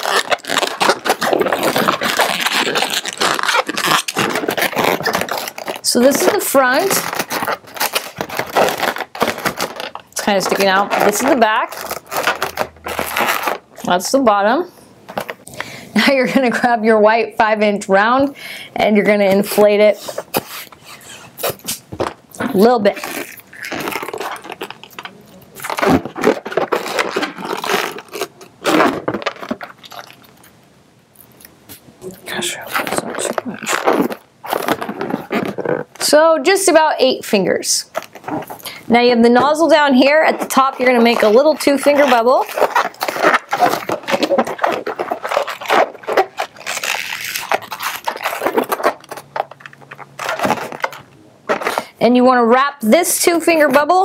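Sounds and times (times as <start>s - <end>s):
balloon rubber rubbing on fingers: 0.0s - 13.7s, 31.7s - 36.6s, 37.8s - 49.5s.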